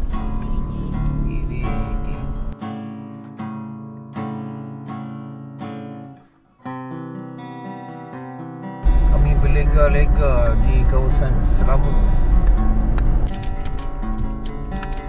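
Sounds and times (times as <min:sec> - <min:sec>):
acoustic guitar strumming chords: 0:00.0 - 0:15.0
low rumble: 0:08.8 - 0:15.0.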